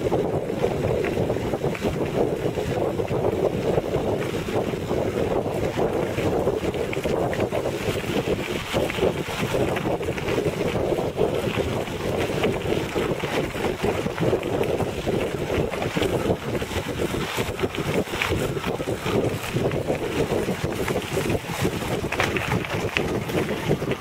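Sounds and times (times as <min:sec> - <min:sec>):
wind buffeting microphone: 0:00.0 - 0:24.0
tyres rolling on gravel: 0:00.1 - 0:24.0.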